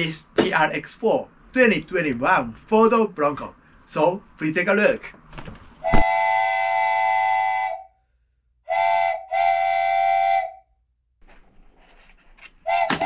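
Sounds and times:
train whistle chord blasts: 6.0 - 8.0, 8.7 - 10.7, 12.7 - 13.0.

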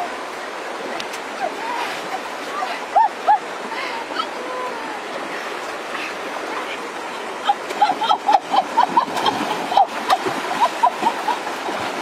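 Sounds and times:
flowing river water: 0.0 - 12.0
water splashing plops and slaps: 8.8 - 12.0.

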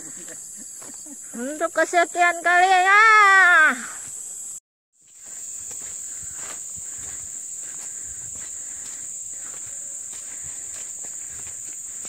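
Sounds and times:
forest insects droning: 0.0 - 12.0
footsteps on dirt path: 0.6 - 1.1, 4.0 - 12.0.

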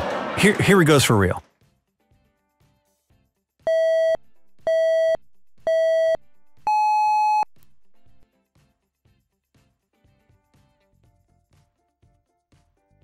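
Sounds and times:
electronic countdown beeps: 3.7 - 7.5.

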